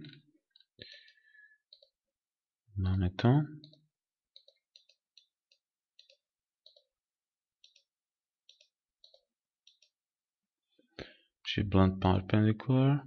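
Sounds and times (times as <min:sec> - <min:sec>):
computer mouse clicking: 0:00.6 - 0:02.0, 0:03.6 - 0:06.9, 0:07.6 - 0:10.0.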